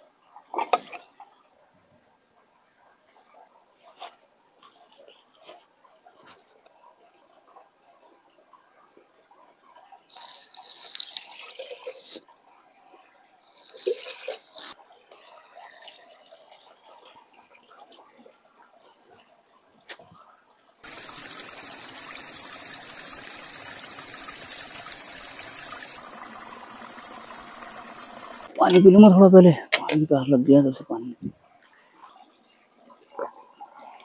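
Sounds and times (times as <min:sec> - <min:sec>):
stream rushing between rocks: 0:20.8 - 0:28.5.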